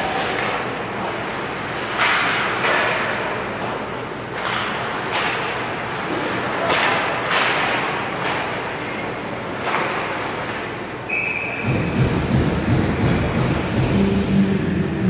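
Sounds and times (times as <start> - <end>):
hockey sticks and puck cracking: 0.0 - 10.9.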